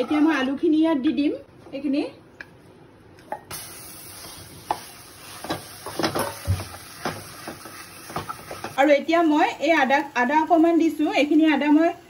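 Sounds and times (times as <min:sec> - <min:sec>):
food sizzling in hot oil: 0:03.5 - 0:12.0
spatula scraping and knocking pan: 0:04.2 - 0:08.8.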